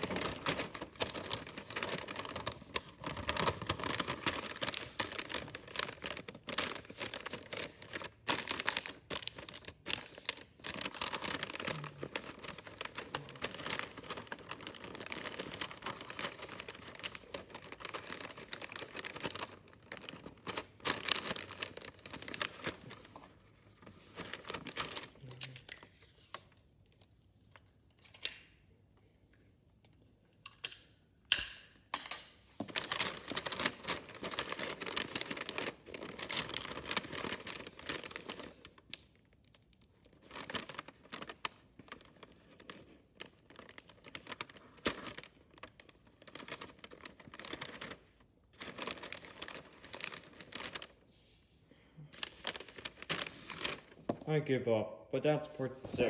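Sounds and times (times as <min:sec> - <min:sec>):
wrapping paper crinkling: 0:00.0 - 0:28.2, 0:32.6 - 0:51.5, 0:52.1 - 0:54.3.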